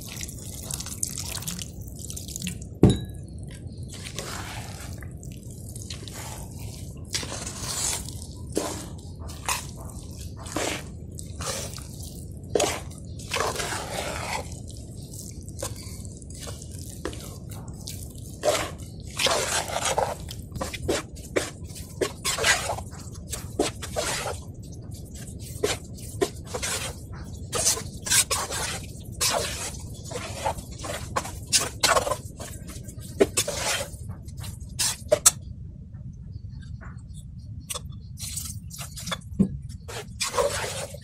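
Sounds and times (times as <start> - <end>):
wet batter squelching: 0.0 - 2.8, 3.6 - 35.4, 37.7 - 41.0
spoon scraping a steel bowl: 25.2 - 35.4, 39.8 - 41.0.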